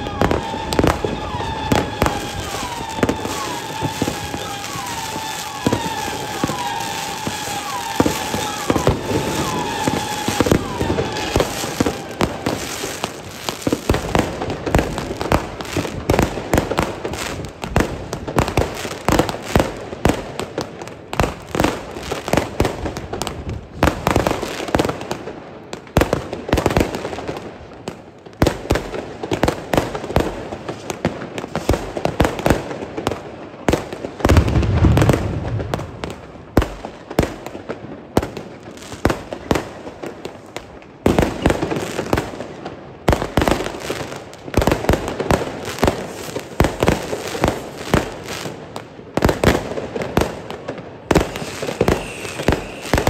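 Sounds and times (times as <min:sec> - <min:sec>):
fireworks banging and crackling: 0:00.0 - 0:53.0
deep firework boom: 0:34.3 - 0:36.1.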